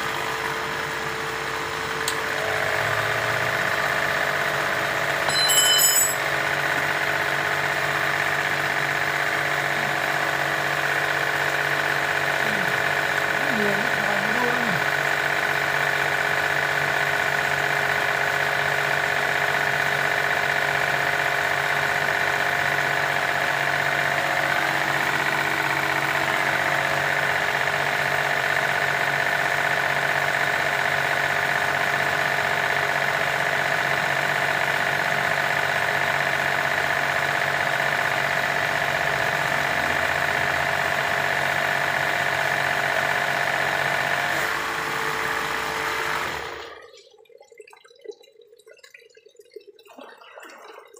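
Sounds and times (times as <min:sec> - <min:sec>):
motor humming and whining: 0:00.0 - 0:05.3, 0:06.6 - 0:47.0.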